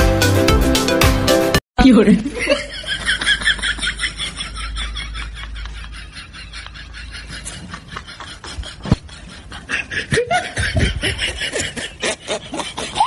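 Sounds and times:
person laughing: 2.2 - 13.0.

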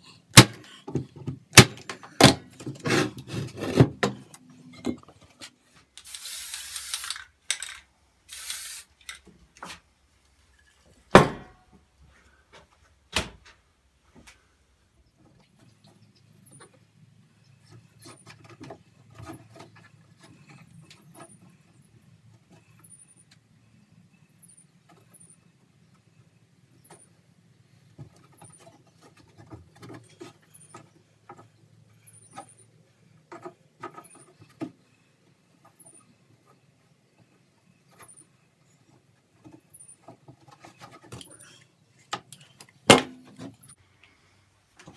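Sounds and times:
bursts of hissing noise: 6.0 - 7.3, 8.3 - 9.2.

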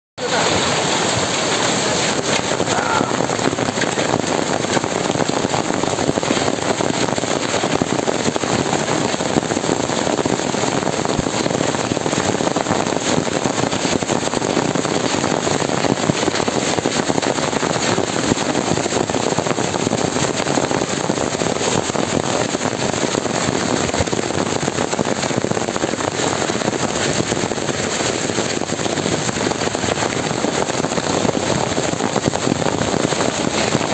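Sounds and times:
heavy hail clattering: 0.2 - 33.9.

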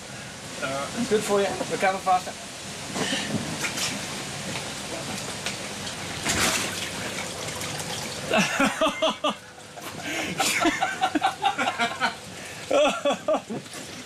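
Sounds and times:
water sloshing and trickling: 1.1 - 14.0
water splash: 5.8 - 8.4.

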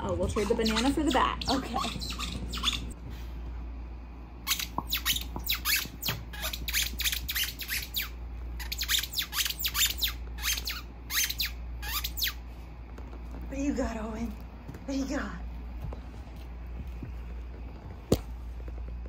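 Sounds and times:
squeaky dog toy squeaking: 0.2 - 3.0, 4.4 - 12.4.

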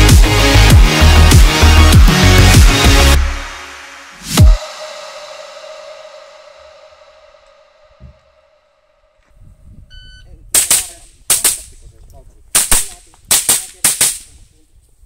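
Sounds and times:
rifle shots: 10.6 - 11.7, 12.6 - 14.3.

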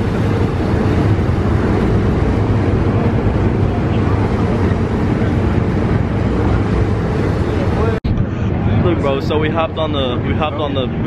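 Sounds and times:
water rushing: 0.0 - 8.1
ferry engine rumble: 0.0 - 11.0
wind buffeting microphone: 0.0 - 11.0.

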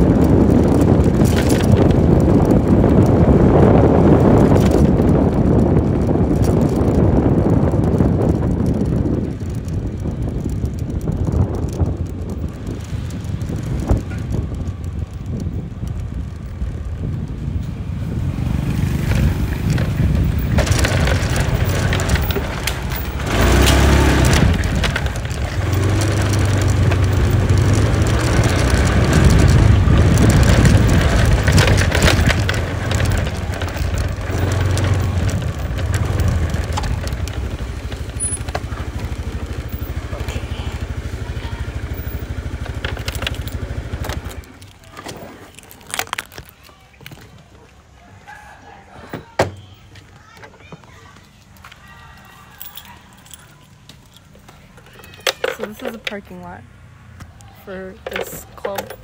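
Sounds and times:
wind rushing over microphone: 0.0 - 45.3
motor scooter engine running: 0.0 - 46.4.

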